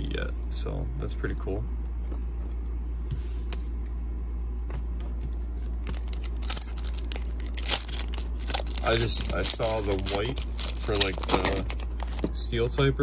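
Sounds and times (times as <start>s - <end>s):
steady low hum: 0.0s - 13.0s
foil wrapper crinkling and tearing: 5.6s - 12.2s.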